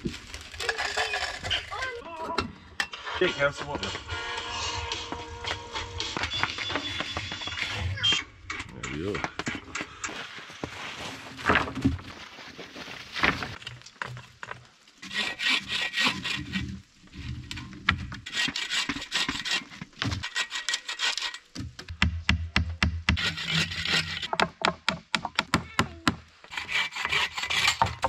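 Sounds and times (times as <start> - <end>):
bow saw cutting wood: 15.0 - 16.9, 18.2 - 21.5, 23.1 - 24.3, 26.5 - 28.0
wood knocking: 24.3 - 26.2.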